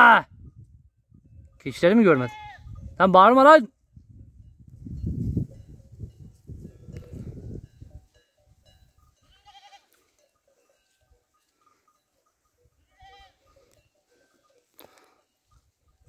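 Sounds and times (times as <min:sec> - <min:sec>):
goats bleating faintly: 0:12.8 - 0:13.7.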